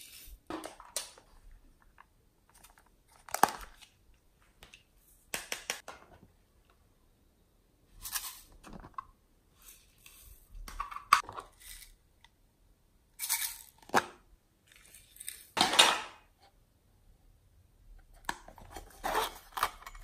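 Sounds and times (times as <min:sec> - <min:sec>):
plastic cases rustling and scraping: 0:18.5 - 0:20.0.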